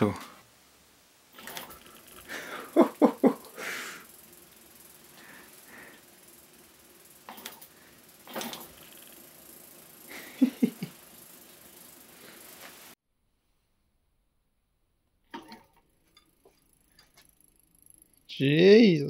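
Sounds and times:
electric bike motor whirring: 0:01.3 - 0:13.0, 0:15.4 - 0:19.0.

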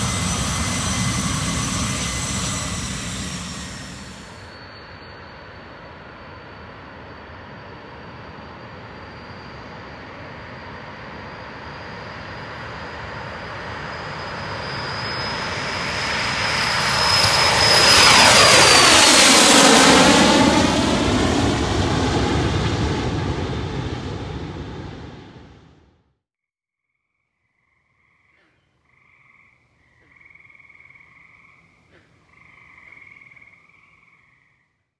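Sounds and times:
jet roar: 0:00.0 - 0:25.9
jet turbine whine: 0:00.0 - 0:25.9.

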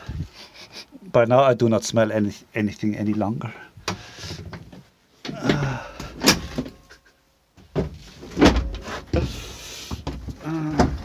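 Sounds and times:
clunks and knocks: 0:07.6 - 0:11.0.

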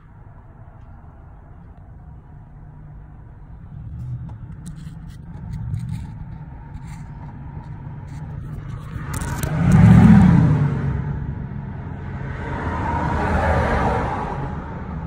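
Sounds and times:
engine low rumble: 0:00.0 - 0:15.0
phone handling scrapes: 0:04.0 - 0:10.0.

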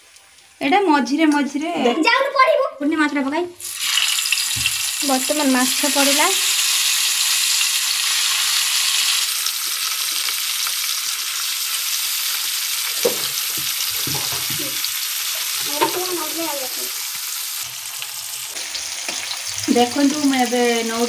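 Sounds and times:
fish frying in hot oil: 0:03.6 - 0:21.0.

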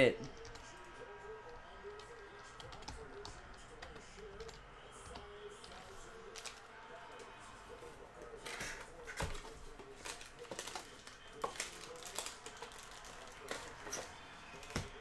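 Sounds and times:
cards rustling: 0:02.0 - 0:15.0
cards clicking and tapping: 0:08.4 - 0:15.0.

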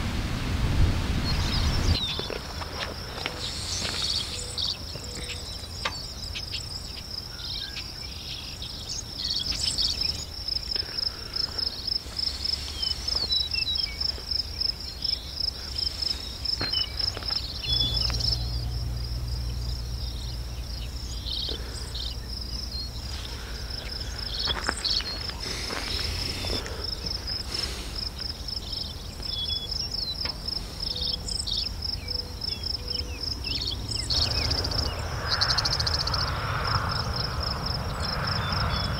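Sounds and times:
insects trilling: 0:01.4 - 0:38.9
low rumble: 0:17.5 - 0:27.5, 0:33.8 - 0:38.9.

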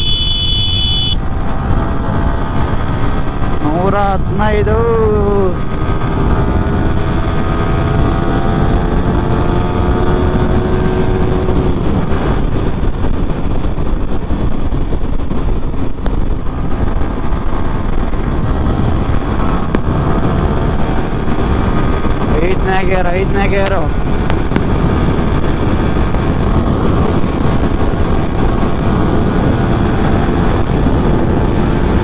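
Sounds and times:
motorcycle engine at full throttle: 0:00.0 - 0:32.0
wind rush on microphone: 0:00.0 - 0:32.0.

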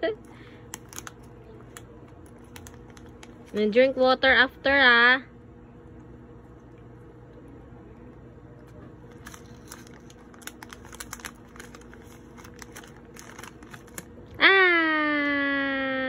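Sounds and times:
plastic snack bag crinkling: 0:00.3 - 0:03.8, 0:09.0 - 0:14.4.

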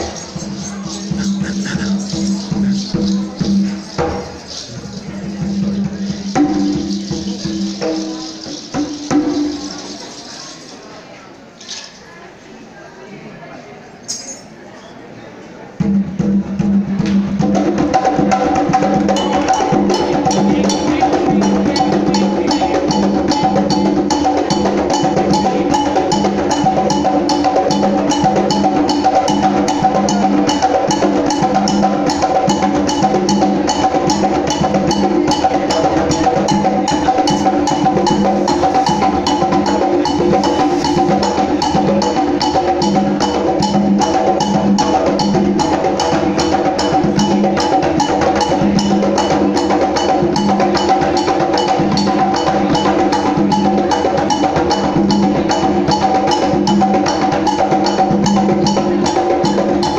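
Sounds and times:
pulsing low drum: 0:00.0 - 0:09.7
hand drums fast rhythm: 0:00.0 - 0:10.5, 0:17.4 - 0:59.9.

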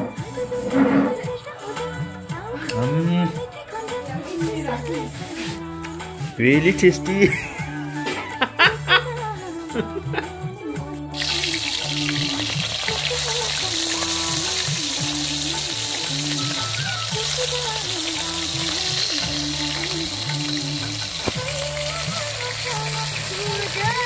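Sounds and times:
background music with bass line: 0:00.0 - 0:24.0
fish sizzling in hot oil: 0:11.2 - 0:24.0.

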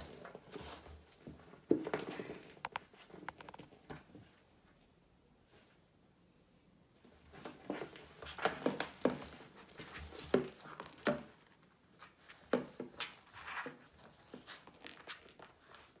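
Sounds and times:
kitten batting ball in cardboard box: 0:07.3 - 0:15.8.

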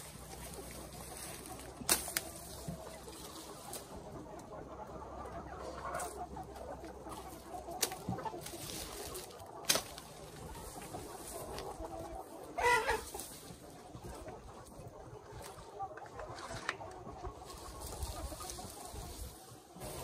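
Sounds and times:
chickens clucking: 0:00.0 - 0:20.0
machete snapping grass stalks: 0:01.7 - 0:02.4, 0:09.6 - 0:10.1
chicken call: 0:12.0 - 0:13.2.

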